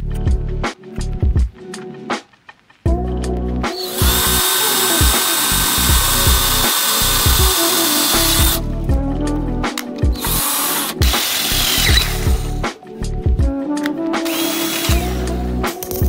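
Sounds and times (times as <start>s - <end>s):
background music with a beat: 0.0s - 16.0s
cordless drill whining: 3.8s - 8.6s, 10.2s - 12.6s, 14.2s - 15.4s.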